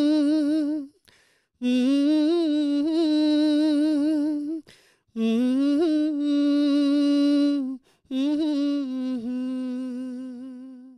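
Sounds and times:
breath: 0:01.0 - 0:01.6, 0:04.7 - 0:05.1, 0:07.8 - 0:08.1.

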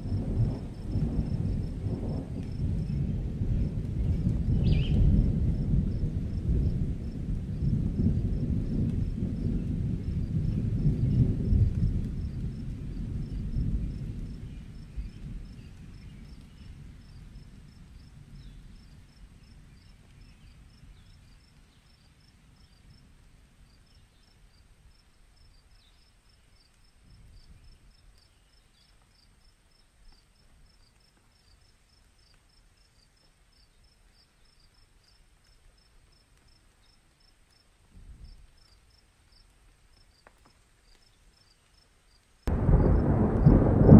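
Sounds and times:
distant rolling thunder: 0:00.0 - 0:19.9, 0:42.5 - 0:43.9
crickets chirping: 0:23.7 - 0:43.9.

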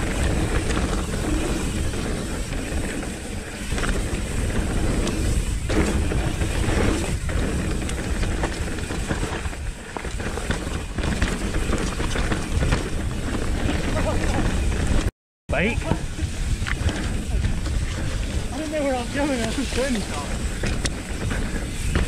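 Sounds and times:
bike knocking and rattling: 0:00.0 - 0:22.0
bike tyres on dirt: 0:00.0 - 0:22.0
wind rumble on microphone: 0:00.0 - 0:22.0.

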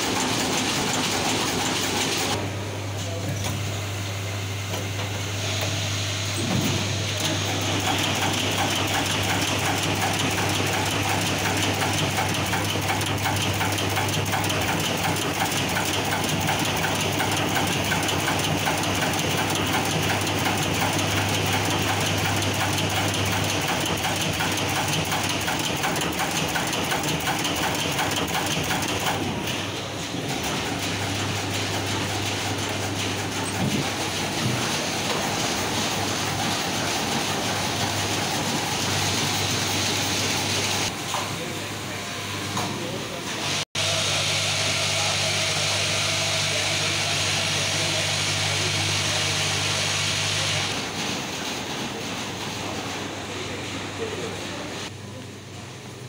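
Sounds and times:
rapid mechanical clicking: 0:00.0 - 0:02.4, 0:07.2 - 0:29.7, 0:30.3 - 0:40.9
low machine hum: 0:02.3 - 0:26.5.

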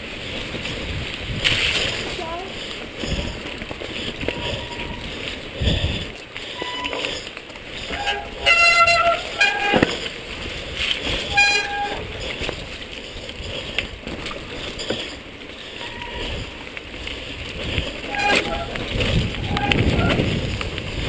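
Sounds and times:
mountain bike rattling downhill: 0:00.0 - 0:21.0
bike brakes squealing: 0:03.0 - 0:10.1, 0:11.0 - 0:12.5, 0:14.6 - 0:16.8, 0:18.0 - 0:20.5.

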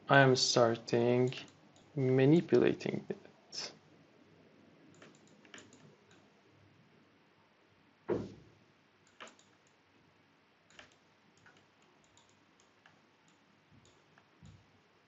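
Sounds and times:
computer mouse clicks: 0:04.9 - 0:06.3, 0:09.0 - 0:09.8, 0:10.7 - 0:14.6.

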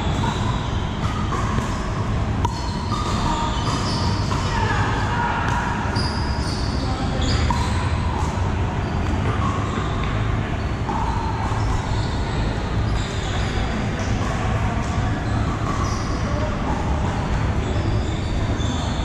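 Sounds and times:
ball bouncing on floor: 0:00.0 - 0:04.8, 0:07.2 - 0:10.2
low hum in large hall: 0:00.0 - 0:19.0.

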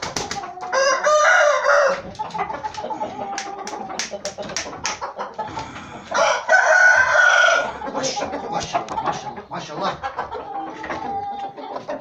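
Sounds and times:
rooster crowing: 0:00.7 - 0:02.1, 0:05.4 - 0:08.2.

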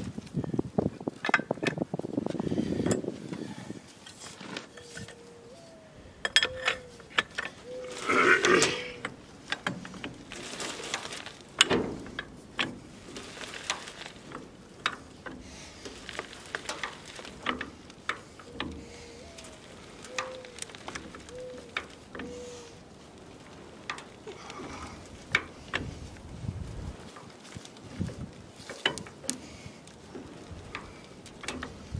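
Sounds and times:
short squeaks: 0:04.4 - 0:09.0
metallic clicks and knocks of jack: 0:11.6 - 0:12.8.

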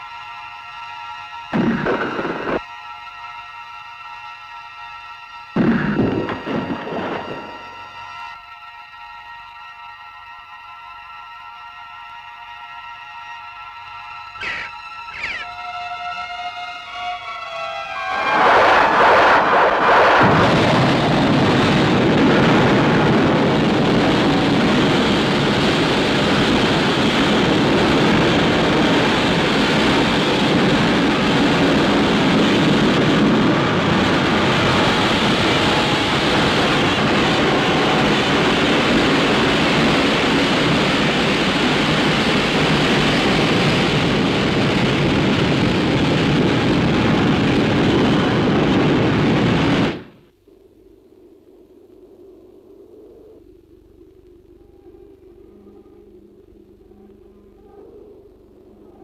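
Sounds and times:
explosion rushing noise: 0:01.6 - 0:02.6, 0:05.6 - 0:07.7, 0:18.0 - 0:25.8.

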